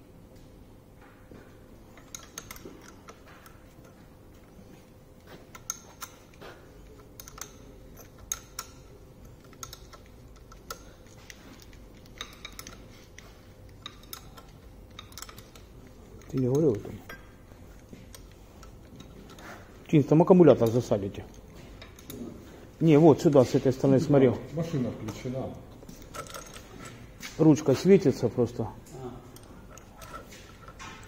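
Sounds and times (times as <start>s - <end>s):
faint steady hum: 0.0s - 31.0s
wrench metallic clicks: 2.0s - 4.0s, 5.5s - 22.2s, 25.0s - 27.0s.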